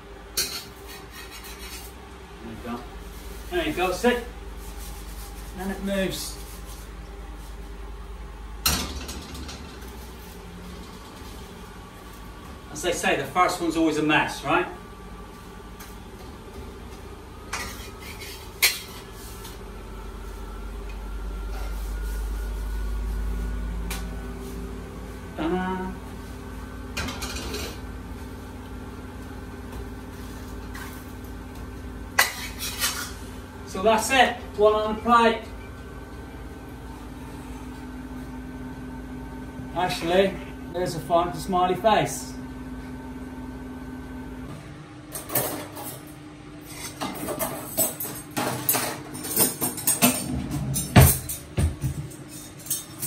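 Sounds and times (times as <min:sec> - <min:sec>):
steady low hum: 0:00.0 - 0:53.0
spatula scraping wok: 0:00.4 - 0:02.0, 0:17.5 - 0:19.5, 0:32.2 - 0:33.3.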